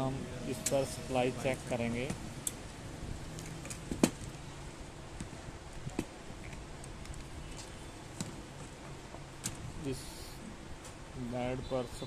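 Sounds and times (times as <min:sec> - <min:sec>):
low background hum: 0:00.0 - 0:12.0.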